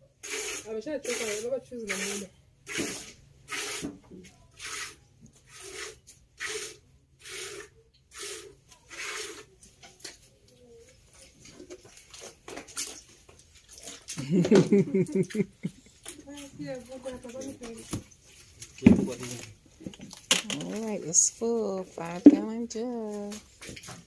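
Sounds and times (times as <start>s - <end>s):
milk squirting into plastic jug: 0.2s - 4.0s, 4.6s - 10.3s.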